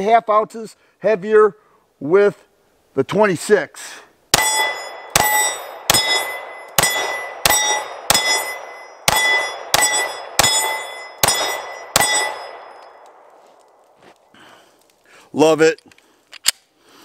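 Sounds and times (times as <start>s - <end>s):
pistol shots: 4.3s - 13.9s
steel target plate ringing: 4.4s - 13.0s.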